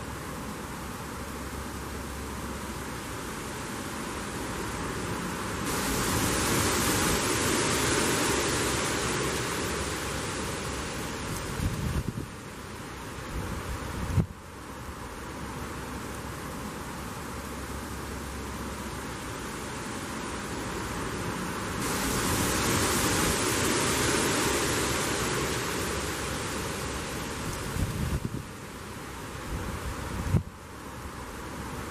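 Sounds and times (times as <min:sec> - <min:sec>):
wind rustling leaves: 0:00.0 - 0:31.9.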